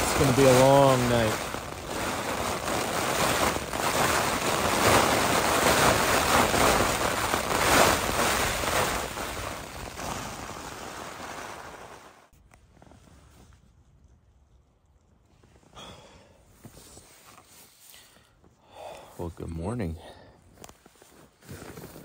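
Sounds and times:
heavy rain on tent: 0.0 - 12.3
strong wind on tent: 0.0 - 13.8.

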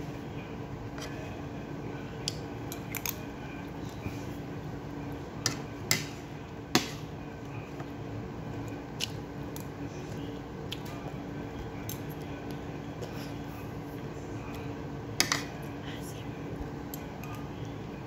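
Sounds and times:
low steady hum: 0.0 - 18.0.

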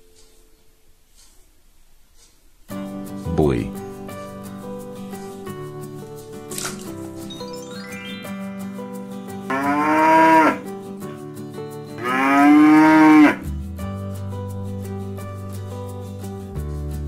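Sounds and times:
background music: 2.7 - 17.0
cattle mooing: 9.5 - 10.7, 12.0 - 13.5.

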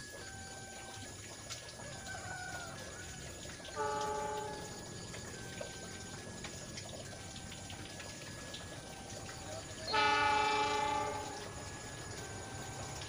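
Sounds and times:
locomotive horn blast: 3.7 - 4.9, 9.7 - 13.0.

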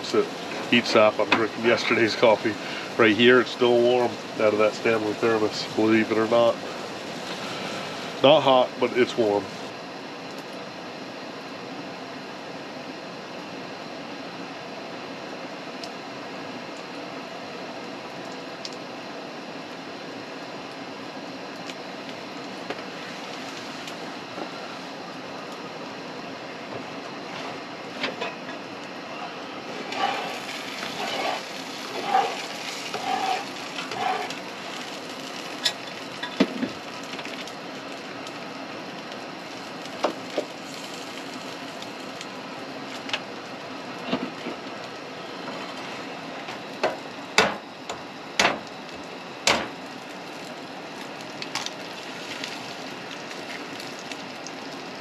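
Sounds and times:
gas burner hiss: 0.0 - 10.7, 19.8 - 55.0
food sizzling in a pan: 29.7 - 36.4, 39.4 - 42.2.

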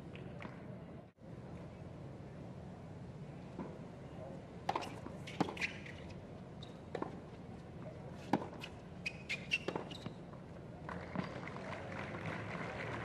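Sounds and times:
sneakers squeaking: 4.7 - 7.2, 8.2 - 10.3
racket striking tennis ball: 9.4 - 10.0
crowd applauding and cheering: 11.3 - 13.0.

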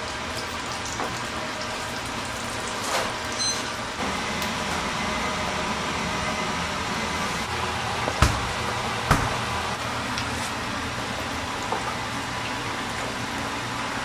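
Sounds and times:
oil sizzling in deep fryer: 0.0 - 14.0.

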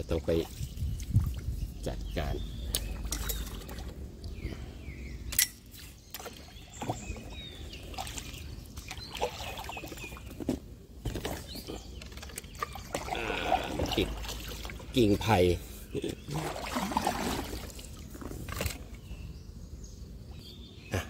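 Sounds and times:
paddle splashing through water: 16.3 - 18.8.

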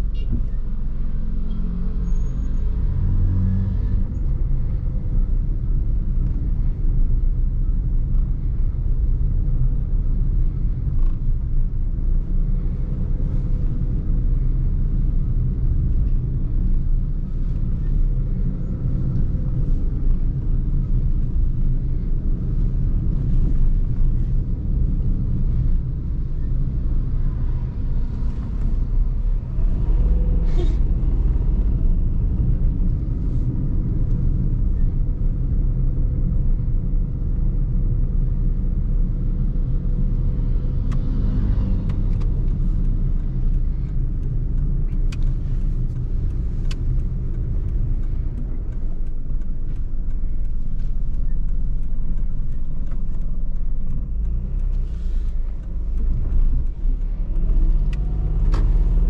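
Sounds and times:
car engine and tyres rumbling: 0.0 - 59.0
faint clicks: 41.9 - 59.0.

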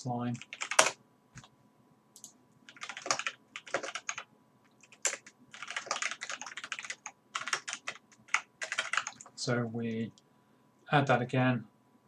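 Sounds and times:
computer keyboard typing: 0.4 - 1.5, 2.2 - 9.4.

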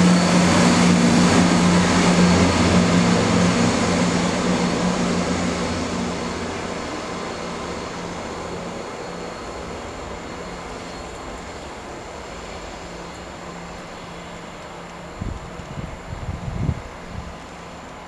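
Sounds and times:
diesel train engine droning: 0.0 - 18.0
wheel and rail noise: 0.0 - 18.0.

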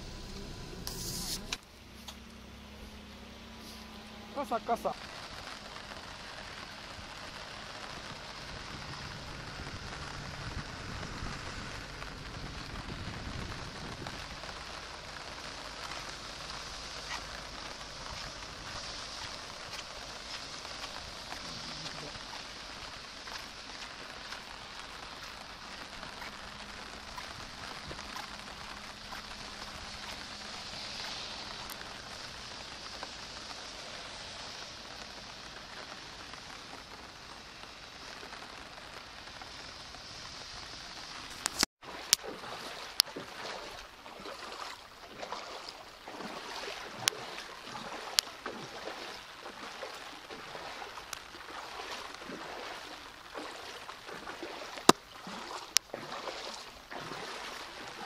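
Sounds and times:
heavy rain on a road: 0.0 - 58.0
water splashes: 0.0 - 58.0
footsteps wading through water: 0.1 - 37.4, 41.2 - 58.0.

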